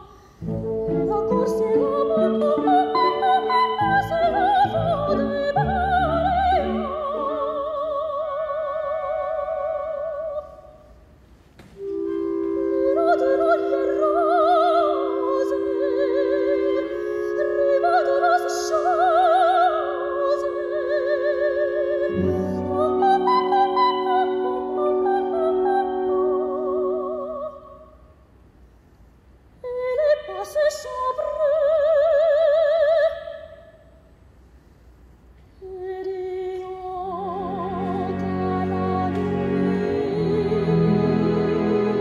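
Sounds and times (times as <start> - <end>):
soprano singing: 0.0 - 10.9, 11.8 - 28.1, 29.6 - 33.8, 35.6 - 42.0
orchestra playing: 0.4 - 7.4, 11.8 - 27.4, 37.0 - 42.0.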